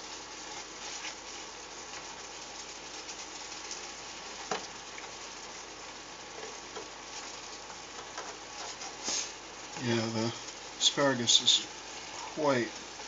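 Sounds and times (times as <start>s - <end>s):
food sizzling in skillet: 0.0s - 13.0s
spatula knocking and scraping pan: 7.7s - 9.0s.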